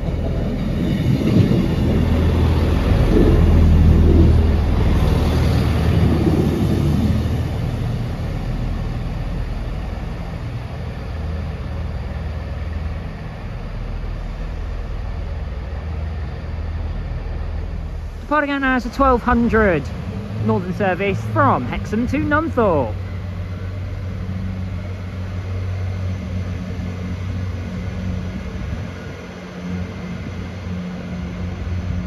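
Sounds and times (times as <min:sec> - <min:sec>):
train engine hum: 0:00.0 - 0:32.0
train wheel noise: 0:00.0 - 0:32.0.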